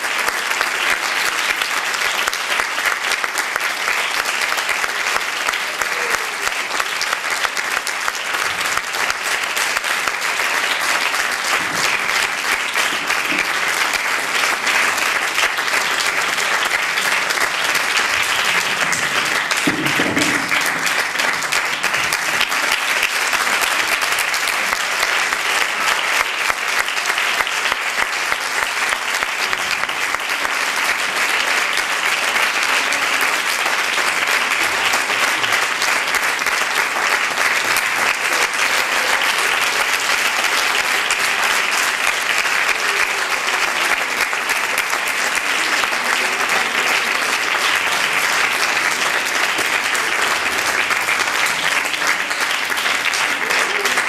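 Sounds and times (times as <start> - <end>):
audience applauding: 0.0 - 54.0.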